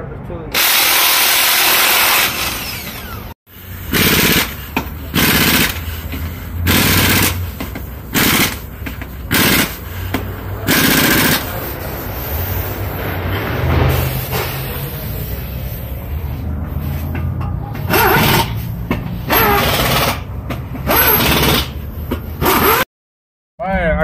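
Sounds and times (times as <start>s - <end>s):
air impact wrench rattling: 0.6s - 12.7s, 17.8s - 22.8s
cordless impact wrench hammering: 3.9s - 11.4s.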